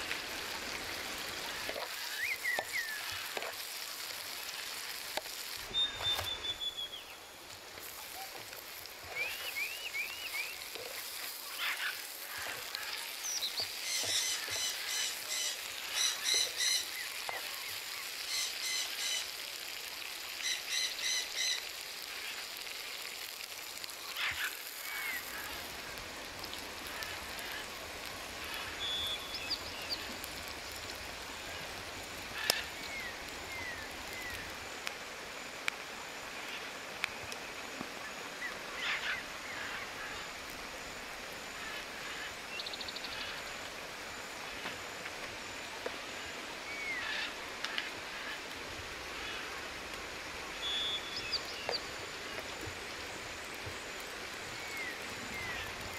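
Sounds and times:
steady hiss: 0.0s - 55.9s
birds whistling and chirping: 5.7s - 7.2s, 9.1s - 10.6s.

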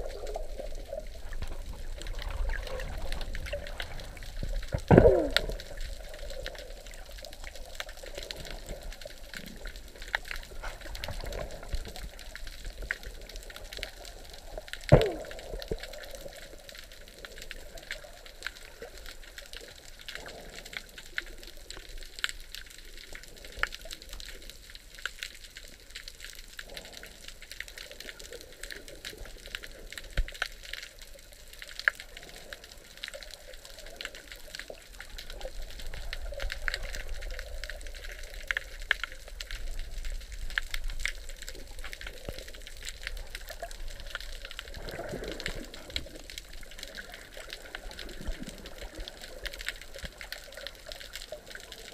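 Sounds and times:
muffled underwater rush: 0.0s - 24.6s, 31.1s - 51.9s
underwater clicks and crackles: 0.0s - 51.9s.

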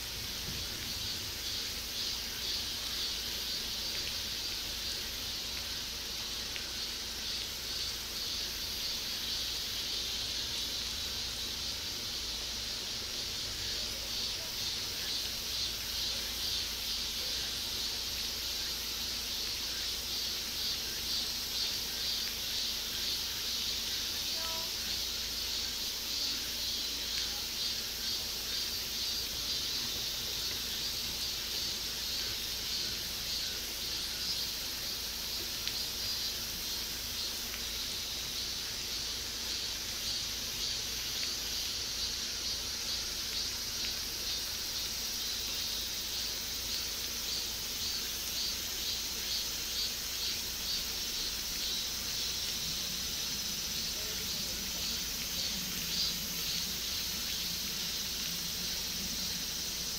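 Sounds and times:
insects chirring: 0.0s - 59.9s.

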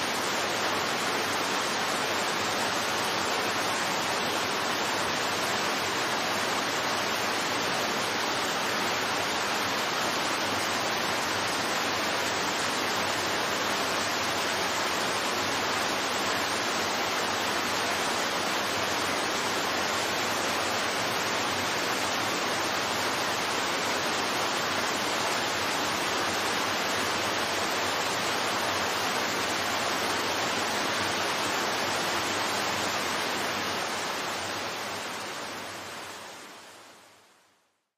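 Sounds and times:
waterfall rushing: 0.0s - 37.2s.

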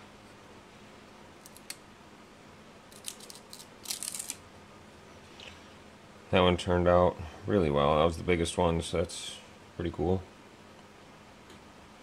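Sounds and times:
paper peeling scratchy rustles: 2.9s - 4.4s.

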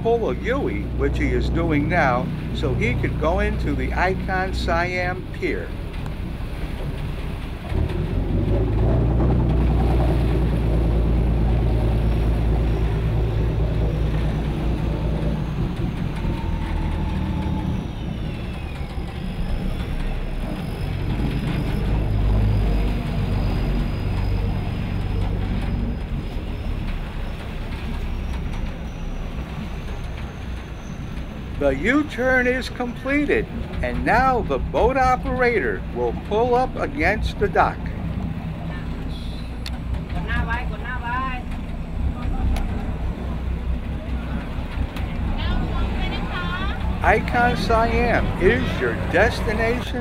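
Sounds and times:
boat engine droning: 0.0s - 50.0s.

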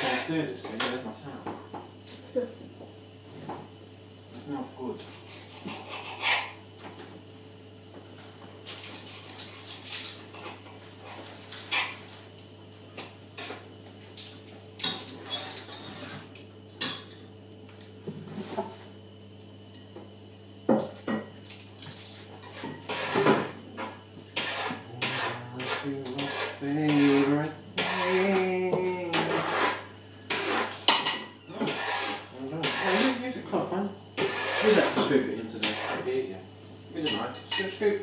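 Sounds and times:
cutlery and pans clinking: 37.1s - 37.9s.

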